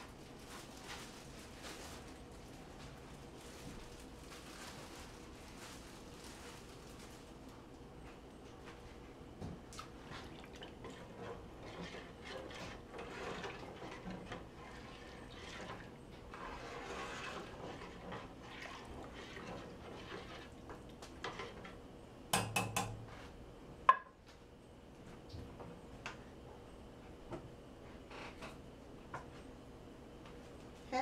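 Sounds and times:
metal spoon scraping in pot: 10.8s - 20.6s.

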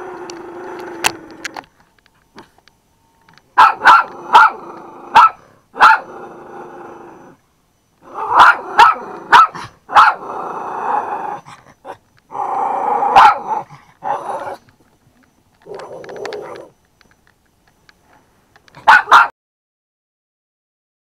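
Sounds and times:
dog growling: 0.0s - 1.7s, 3.8s - 7.4s, 8.0s - 14.7s, 15.6s - 16.7s
dog barking: 3.6s - 6.1s, 8.2s - 10.3s, 13.1s - 14.6s, 18.8s - 19.3s.

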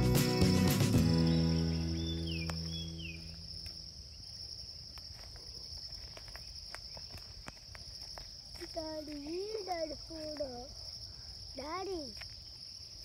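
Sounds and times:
music track: 0.0s - 3.0s.

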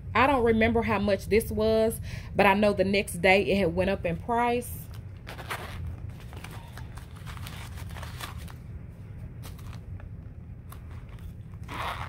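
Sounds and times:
low hum: 0.0s - 12.0s
paper stuffing crinkling: 4.8s - 8.6s, 9.2s - 12.0s
coin purse unzipping: 5.3s - 5.9s, 10.9s - 12.0s.

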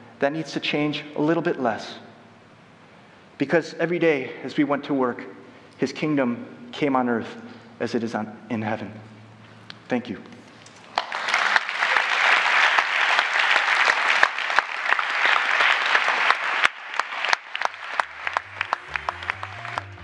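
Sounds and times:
audience clapping: 10.8s - 20.0s
low music notes: 17.8s - 20.0s.

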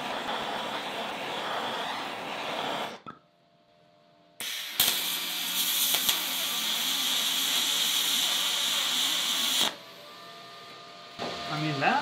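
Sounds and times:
welding arc hissing: 0.0s - 3.0s, 4.4s - 9.8s.

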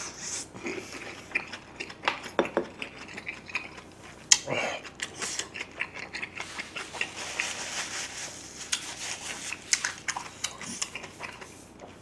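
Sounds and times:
chewing food: 0.6s - 12.0s.

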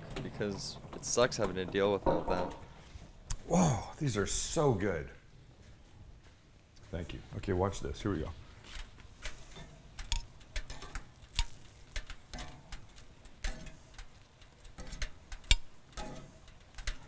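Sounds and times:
metal tongs clicking on grill grates: 8.8s - 17.0s.

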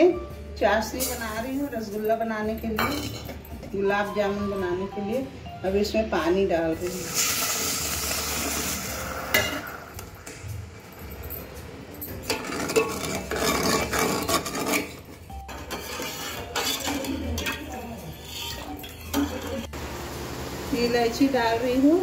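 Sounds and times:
water pouring into pot: 6.9s - 9.9s
ladle scraping metal pot: 12.2s - 19.8s.

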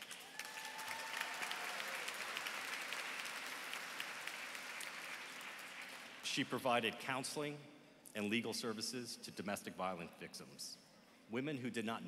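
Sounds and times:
crowd clapping: 0.0s - 6.3s.

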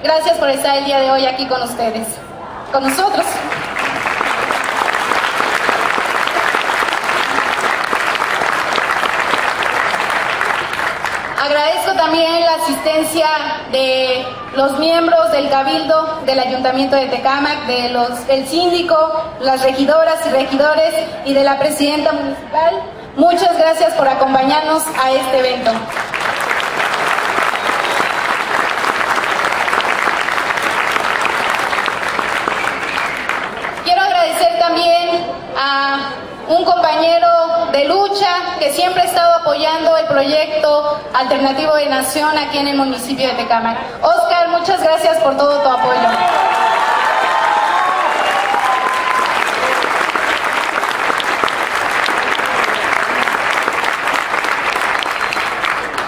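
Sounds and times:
audience clapping: 2.8s - 11.9s, 25.7s - 33.9s, 46.1s - 56.0s.

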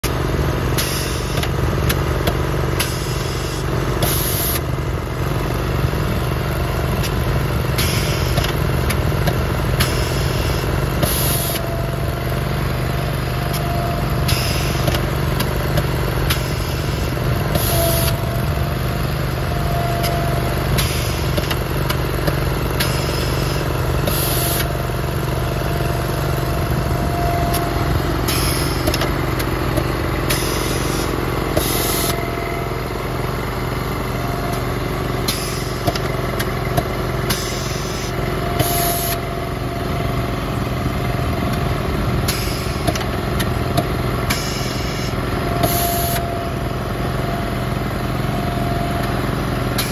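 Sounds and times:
aerator engine running: 0.0s - 49.9s
compressed air hiss: 30.3s - 32.1s.

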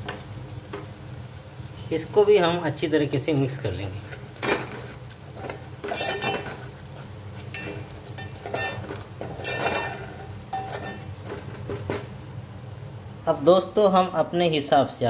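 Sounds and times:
paste frying: 0.0s - 13.2s
spoon scraping metal pot: 5.4s - 6.6s, 7.5s - 11.1s.

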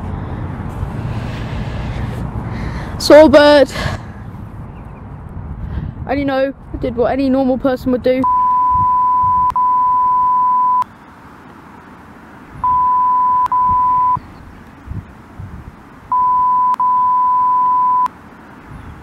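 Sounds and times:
censor bleep: 8.2s - 10.9s, 12.6s - 14.2s, 16.1s - 18.1s.

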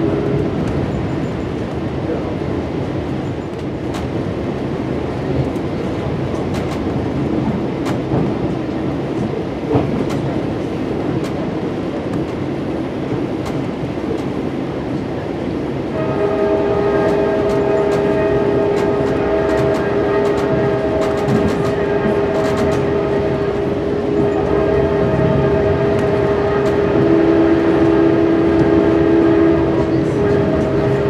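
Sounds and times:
train rumbling: 0.0s - 31.0s
locomotive air horn chord: 15.9s - 31.0s.

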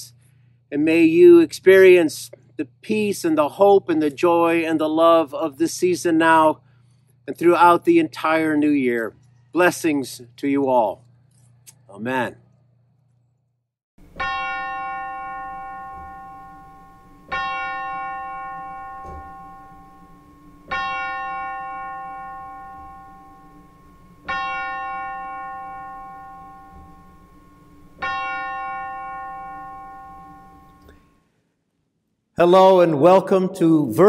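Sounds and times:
bell tolling: 14.0s - 31.2s.

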